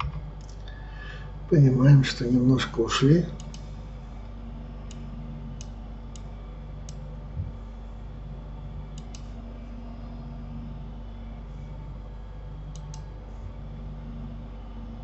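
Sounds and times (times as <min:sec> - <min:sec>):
steady electrical hum: 0:00.0 - 0:15.0
computer mouse clicks: 0:03.4 - 0:03.7, 0:09.0 - 0:09.3, 0:12.7 - 0:13.1.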